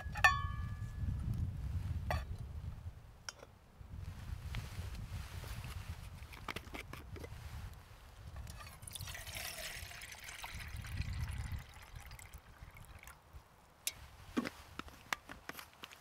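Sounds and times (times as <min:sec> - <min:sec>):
water pouring into metal mug: 0:08.6 - 0:13.2.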